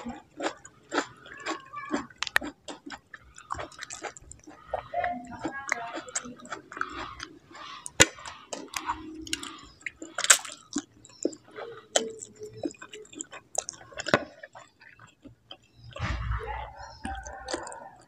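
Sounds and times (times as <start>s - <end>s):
chewing with wet mouth clicks: 0.0s - 18.0s.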